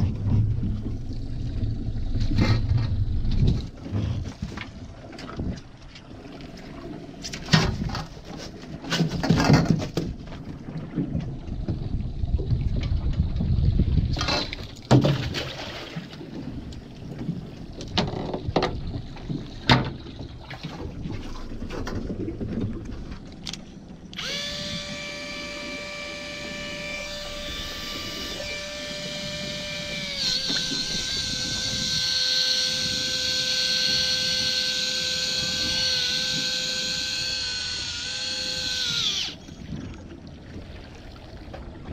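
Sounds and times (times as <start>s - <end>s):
electric reel motor whining: 24.1s - 39.6s.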